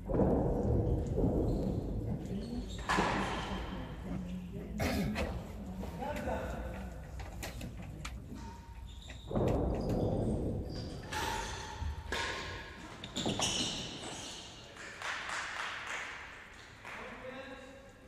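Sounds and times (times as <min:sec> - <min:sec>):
hard ball knocking in echoing hall: 0:00.0 - 0:04.3, 0:09.2 - 0:14.4.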